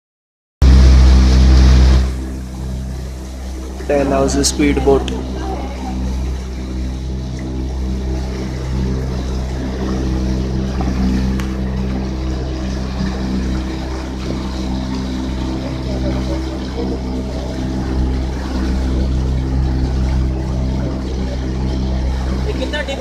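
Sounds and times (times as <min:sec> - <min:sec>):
speedboat engine droning: 0:00.6 - 0:23.0.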